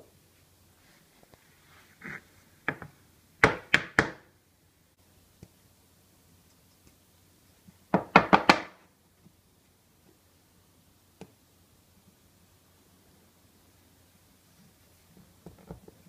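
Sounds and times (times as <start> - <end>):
portafilter knocking on wooden board: 7.9 - 8.7.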